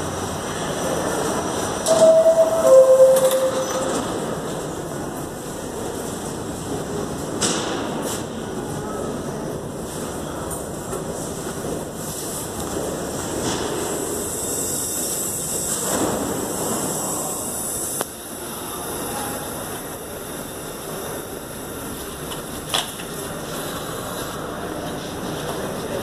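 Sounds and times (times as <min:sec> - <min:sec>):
subway train rumbling on rails: 0:00.0 - 0:26.0.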